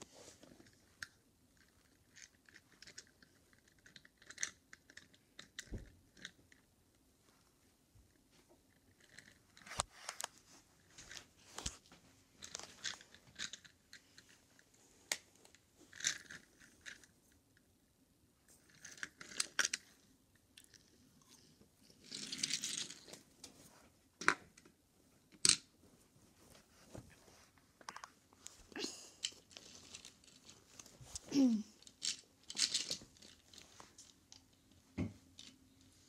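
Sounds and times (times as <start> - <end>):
toy cars clicking and scraping: 0.4 - 6.7, 8.7 - 10.3, 12.4 - 17.2, 18.5 - 23.3, 25.3 - 25.7, 29.1 - 34.7.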